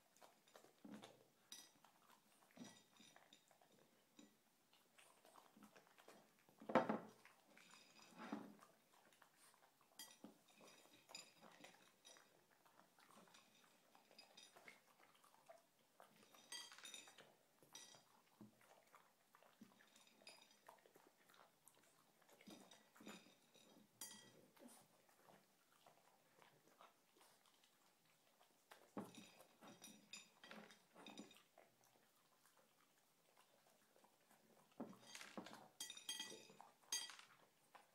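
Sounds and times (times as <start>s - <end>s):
dog chewing: 0.0s - 37.9s
clicks and clinks against plate: 0.5s - 4.3s, 10.0s - 12.3s, 16.1s - 18.1s, 22.4s - 24.4s, 28.9s - 31.5s, 34.8s - 37.4s.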